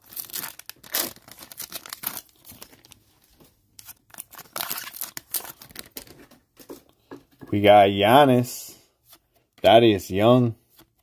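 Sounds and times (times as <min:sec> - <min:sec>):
foil wrapper tearing and crinkling: 0:00.0 - 0:03.0, 0:03.8 - 0:06.1.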